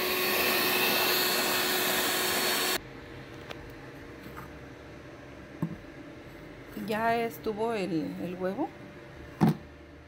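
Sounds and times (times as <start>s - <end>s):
electric mixer running: 0.0s - 2.8s.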